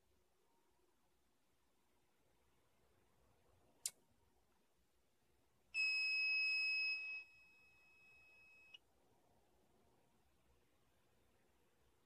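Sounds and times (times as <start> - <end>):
fire alarm panel beep: 5.8 - 8.8.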